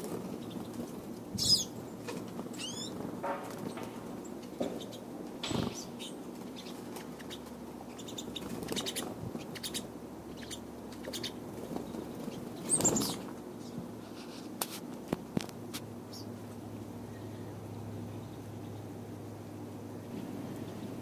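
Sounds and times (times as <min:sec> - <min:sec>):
bird wings fluttering: 0:02.0 - 0:04.3, 0:05.4 - 0:07.4, 0:08.4 - 0:09.5, 0:11.5 - 0:13.3.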